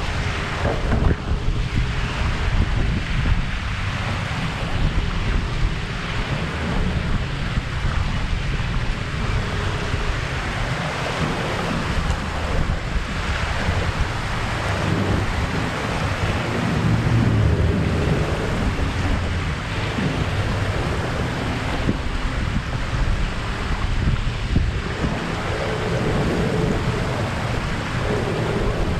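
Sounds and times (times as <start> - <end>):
small waves washing ashore: 0.0 - 28.9
wind buffeting microphone: 0.0 - 28.9.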